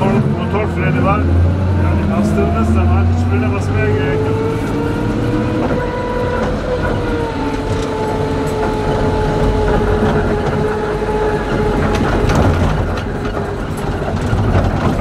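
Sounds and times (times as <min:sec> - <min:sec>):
vehicle cabin rumble: 0:00.0 - 0:15.0
rattles and clicks: 0:04.5 - 0:15.0.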